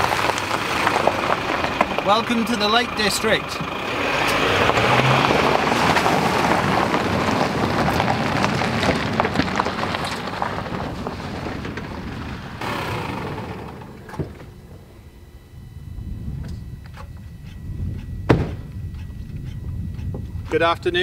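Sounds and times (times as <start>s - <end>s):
rocks knocking under wheels: 0.0s - 2.6s, 4.6s - 12.5s
tyres crunching over gravel: 0.0s - 14.0s.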